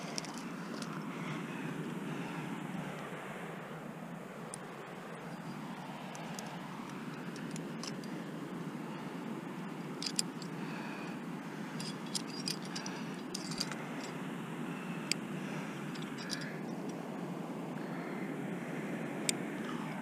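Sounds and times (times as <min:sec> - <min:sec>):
carabiners clinking: 0:00.0 - 0:01.1, 0:04.5 - 0:08.2, 0:09.7 - 0:10.7, 0:11.7 - 0:14.2, 0:15.8 - 0:16.9.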